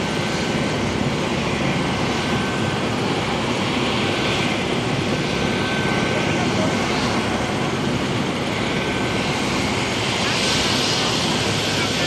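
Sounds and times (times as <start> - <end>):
helicopter turbine engines running: 0.0 - 12.0.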